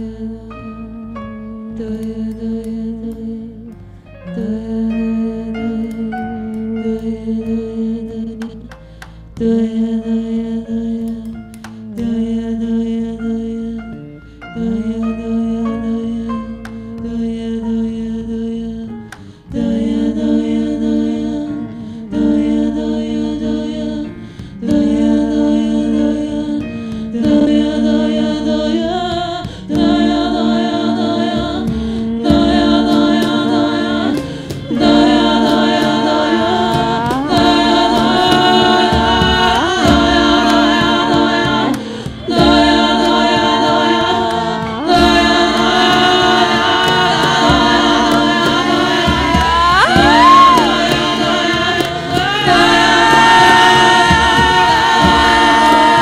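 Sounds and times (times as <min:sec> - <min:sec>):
voices singing long notes: 0:27.2 - 0:56.0.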